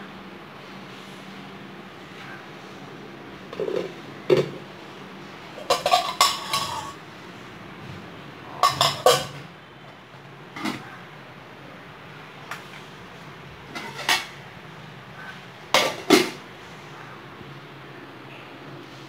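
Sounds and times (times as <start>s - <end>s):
metal utensils clattering on pots: 3.5s - 4.6s, 5.6s - 7.0s, 8.5s - 9.6s, 10.5s - 10.9s, 13.6s - 14.4s, 15.7s - 16.4s.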